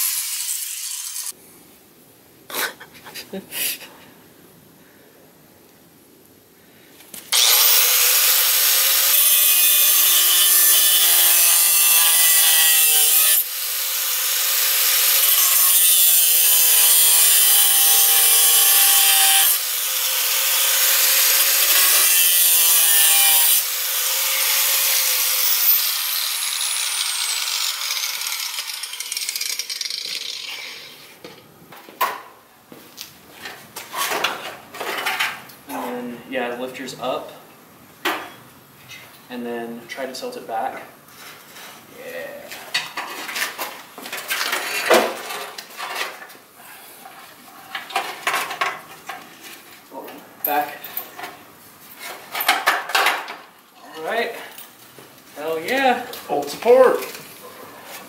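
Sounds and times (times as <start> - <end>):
angle grinder cutting metal: 0.0 - 1.3, 7.3 - 31.0.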